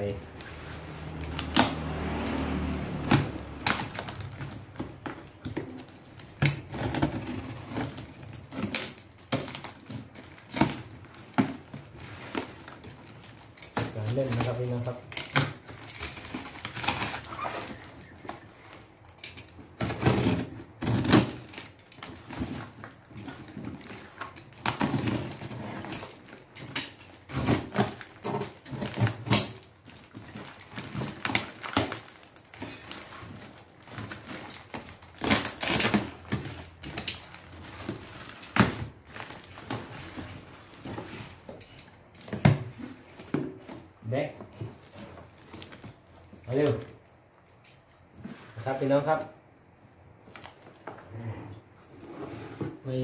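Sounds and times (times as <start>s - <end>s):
tape tearing: 0.0s - 49.2s
box cutter slicing tape and cardboard: 19.8s - 21.7s, 34.0s - 37.2s.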